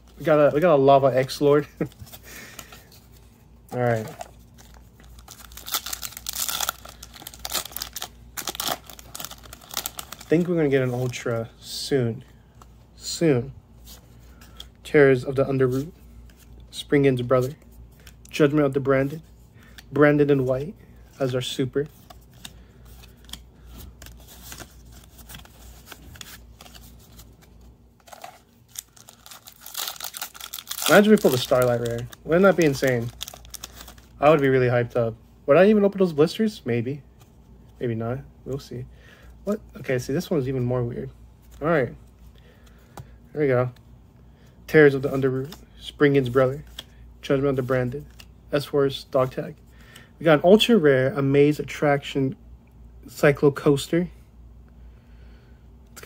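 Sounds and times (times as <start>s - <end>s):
foil pack crinkling and tearing: 4.6s - 10.5s, 28.0s - 34.1s.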